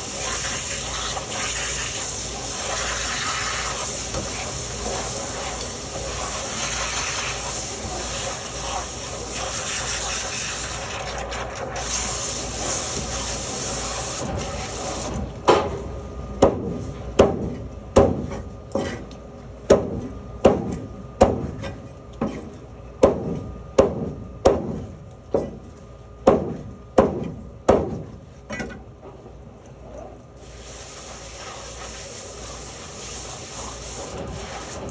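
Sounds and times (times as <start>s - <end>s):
steady hiss: 30.4s - 34.9s.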